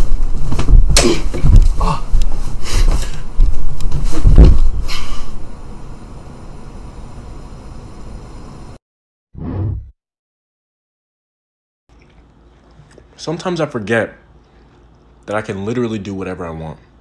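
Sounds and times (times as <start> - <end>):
body thudding on bed and floor: 0.0 - 5.0
low room hiss: 12.0 - 17.0.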